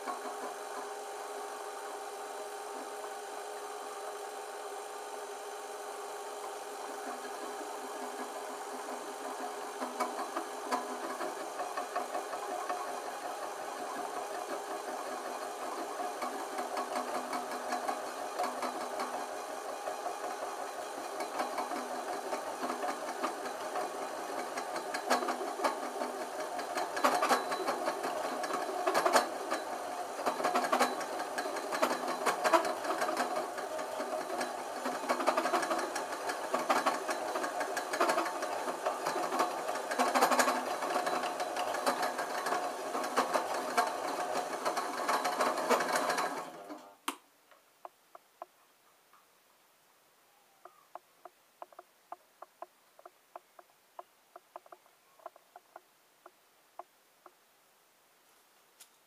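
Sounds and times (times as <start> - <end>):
metal lathe whirring and rattling: 0.0 - 46.9.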